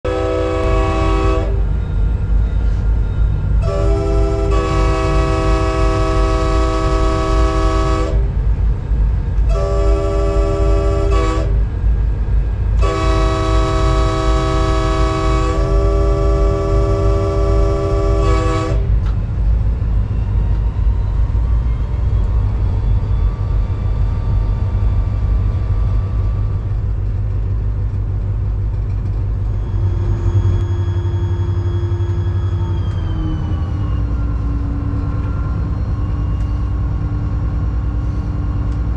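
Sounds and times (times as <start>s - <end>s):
diesel locomotive engine running: 0.0s - 38.9s
rail noise: 0.0s - 38.9s
locomotive air horn blasts: 0.1s - 1.7s, 3.6s - 8.4s, 9.4s - 11.6s, 12.8s - 19.0s.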